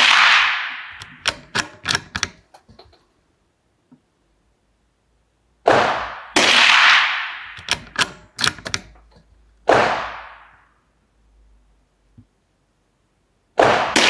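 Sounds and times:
rifle shots with ringing tail: 0.0 - 1.0, 5.6 - 7.6, 9.7 - 10.6, 13.6 - 14.0
sharp clicks: 0.9 - 3.0, 7.5 - 9.3.

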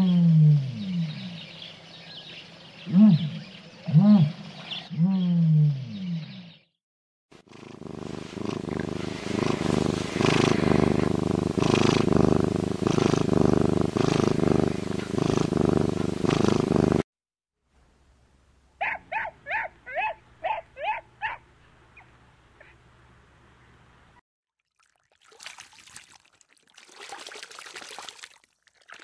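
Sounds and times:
puppy high yips: 18.8 - 21.4.

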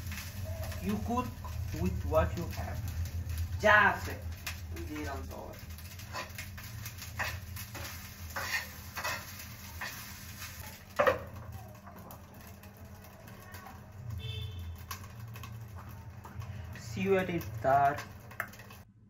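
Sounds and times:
metal spatula scraping frying pan: 5.8 - 11.1.

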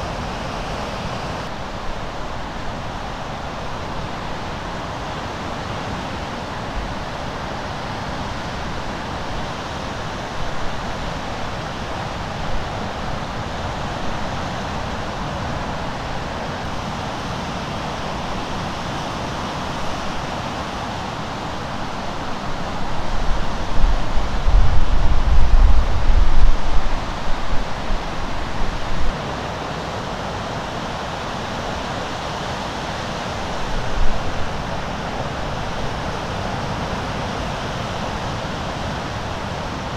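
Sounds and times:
wind buffeting microphone: 22.7 - 29.2.

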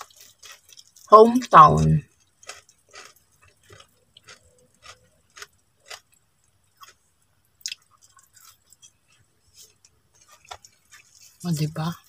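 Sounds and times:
chewing and lip smacks: 2.1 - 7.0, 7.6 - 11.4.

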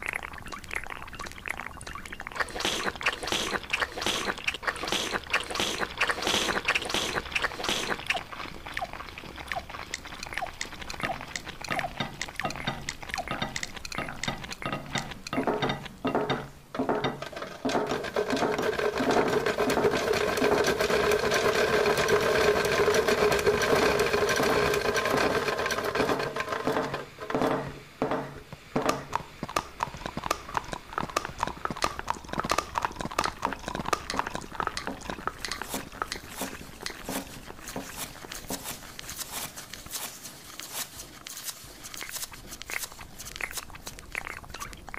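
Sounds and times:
clicks squelches and chewing: 0.0 - 16.0, 29.1 - 44.9.

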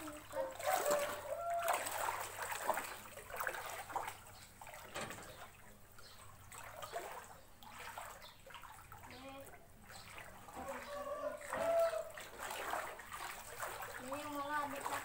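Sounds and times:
feet wading through water: 0.0 - 15.0.

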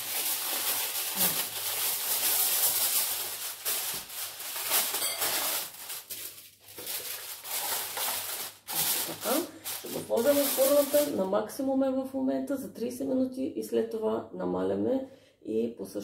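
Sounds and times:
aluminium foil crinkling: 0.0 - 11.4.

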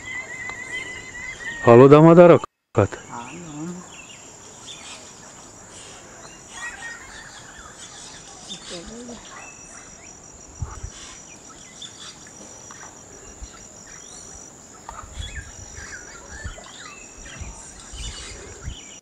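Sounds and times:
birds chirping and whistling: 0.0 - 1.9, 5.7 - 19.0
high-pitched insect drone: 2.9 - 18.9.

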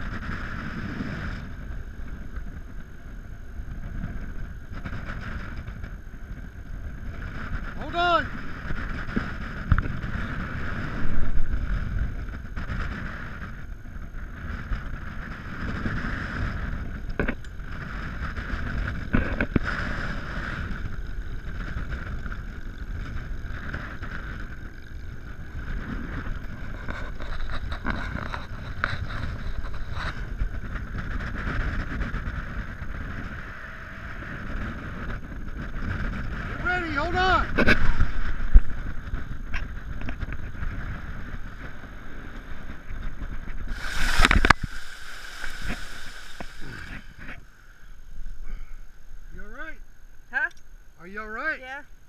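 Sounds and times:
wind buffeting microphone: 0.0 - 47.4.

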